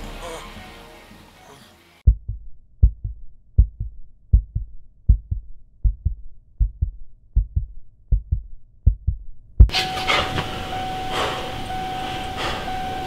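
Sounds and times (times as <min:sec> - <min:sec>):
heartbeat double thumps: 0:02.0 - 0:09.8.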